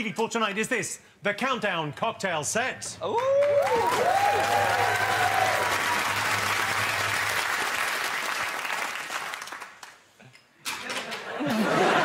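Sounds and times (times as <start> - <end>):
audience applauding: 3.0 - 10.2.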